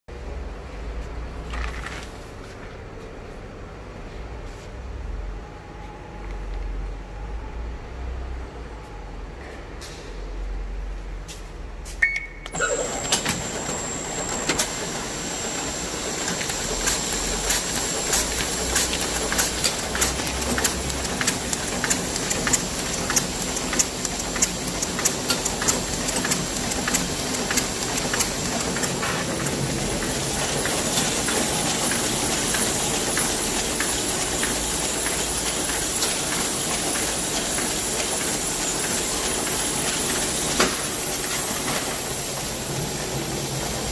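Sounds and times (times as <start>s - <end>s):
high machine whine: 12.5s - 43.9s
printing press clatter: 12.5s - 43.9s
sharp regular clicks: 18.2s - 29.6s.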